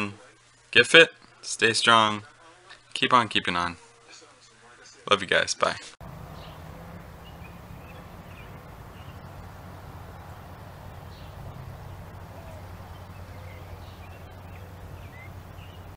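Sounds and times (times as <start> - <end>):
faint bird chirps: 6.0 - 15.9
steady low hum: 6.0 - 15.9.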